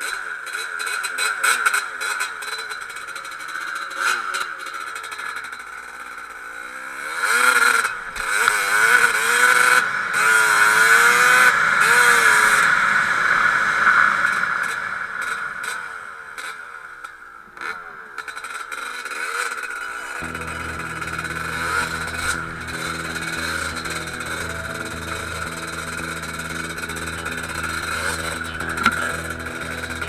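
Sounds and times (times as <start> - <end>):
dirt bike engine revving: 19.1 - 30.0.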